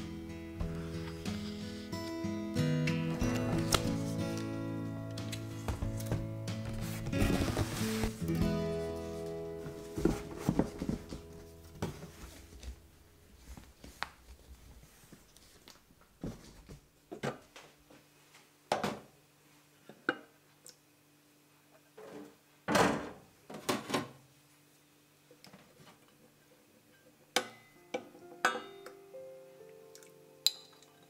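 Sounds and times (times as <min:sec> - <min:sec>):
books knocking and thudding: 0:05.3 - 0:08.3, 0:09.6 - 0:12.8.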